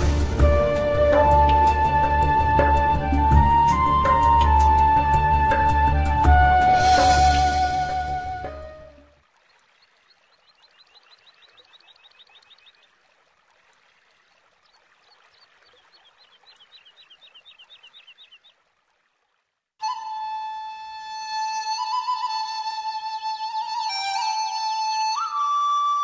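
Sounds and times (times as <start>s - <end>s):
flute background music: 0.0s - 9.2s, 19.8s - 26.0s
bird chirping: 9.8s - 13.0s, 14.7s - 18.6s.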